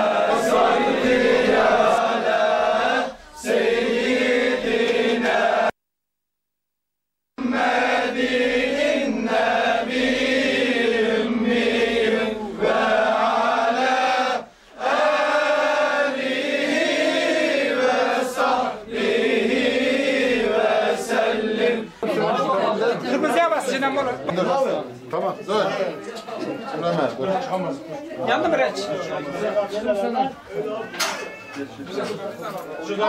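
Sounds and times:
men chanting in unison: 0:00.0 - 0:05.7, 0:07.4 - 0:23.8.

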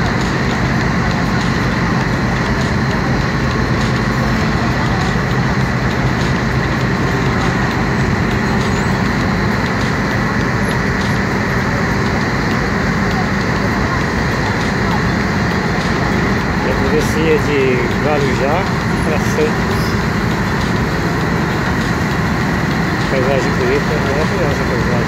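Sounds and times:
boat engine running: 0:00.0 - 0:25.0
churning water: 0:00.0 - 0:25.0.

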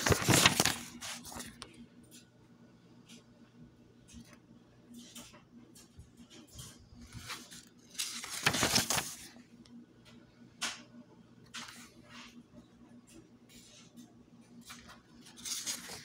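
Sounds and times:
book pages rustling: 0:00.0 - 0:01.7, 0:06.6 - 0:09.3, 0:14.6 - 0:16.0.

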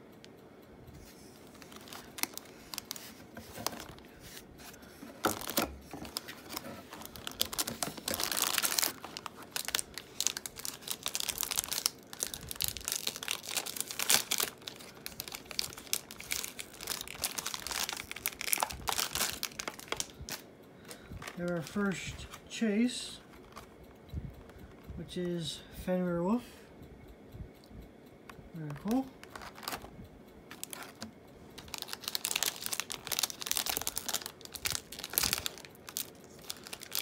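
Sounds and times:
foil pack crinkling and tearing: 0:01.5 - 0:04.2, 0:05.2 - 0:20.5, 0:29.2 - 0:29.9, 0:30.5 - 0:37.0.

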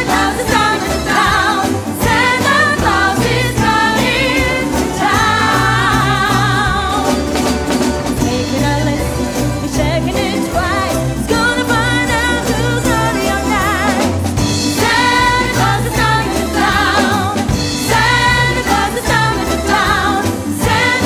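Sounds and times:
live band playing: 0:00.0 - 0:21.0
woman singing into a microphone: 0:04.5 - 0:07.4, 0:08.2 - 0:14.3.

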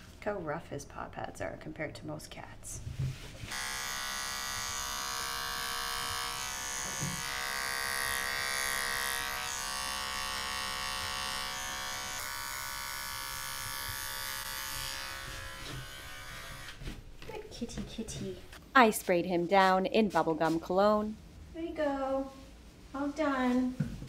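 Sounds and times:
electric pet trimmer buzzing: 0:03.5 - 0:16.8.

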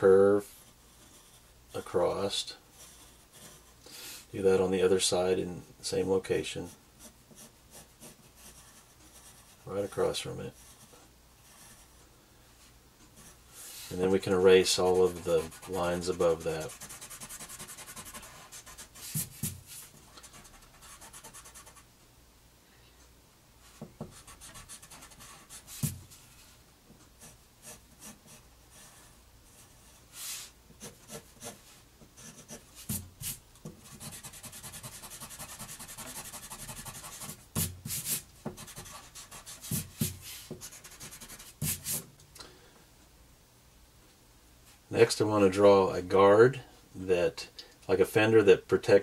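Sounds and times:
pencil scratching on paper: 0:00.5 - 0:01.5, 0:02.7 - 0:03.8, 0:07.0 - 0:09.6, 0:10.5 - 0:12.0, 0:13.2 - 0:21.8, 0:23.8 - 0:26.2, 0:30.8 - 0:31.6, 0:32.2 - 0:42.0
eraser rubbing on paper: 0:13.6 - 0:21.8, 0:24.1 - 0:26.3, 0:30.1 - 0:42.1.

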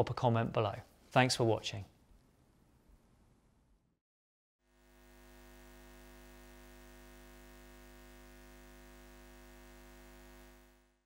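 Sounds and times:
faint electrical hum: 0:04.8 - 0:11.0.

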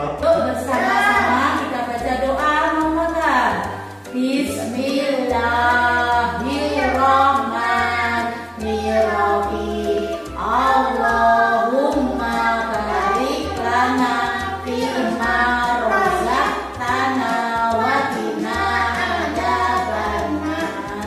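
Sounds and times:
instrumental backing track with bass: 0:00.0 - 0:21.0
high voice singing: 0:03.6 - 0:21.0.

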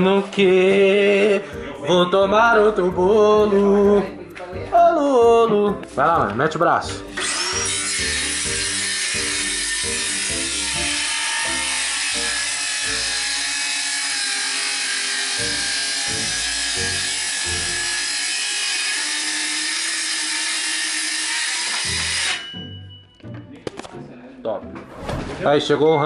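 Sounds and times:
background music with bass line: 0:00.4 - 0:07.2
tool rasping wood: 0:07.2 - 0:22.4.

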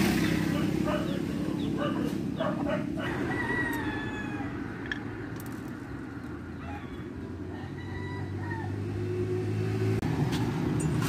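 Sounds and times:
rooster crowing: 0:02.7 - 0:04.8, 0:06.5 - 0:09.1.

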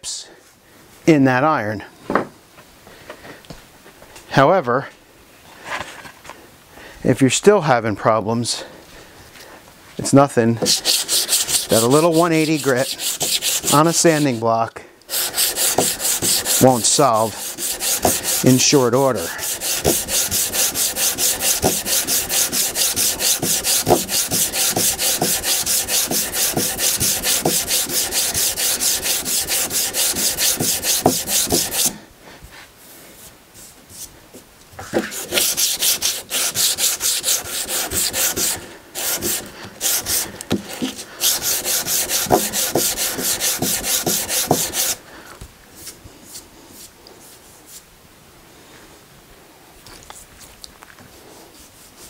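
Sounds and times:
sanding block rubbing on wood: 0:10.6 - 0:32.0, 0:34.9 - 0:45.0.

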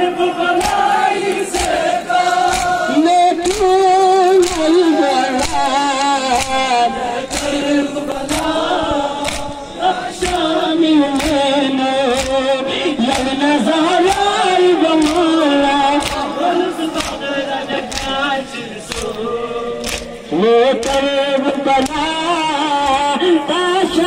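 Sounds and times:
men chanting a lament: 0:00.0 - 0:24.0
chest beating slaps: 0:00.6 - 0:21.2.

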